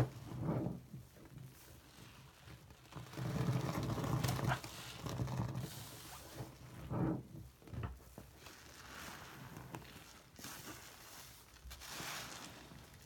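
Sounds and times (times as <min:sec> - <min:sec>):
wet squishing of soapy sponge: 0:00.0 - 0:13.0.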